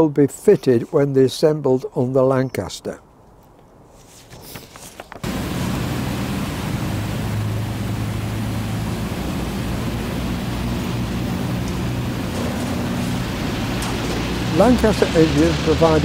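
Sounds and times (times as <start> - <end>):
aircraft engine drone: 5.2 - 16.0
heavy rushing noise: 5.2 - 16.0.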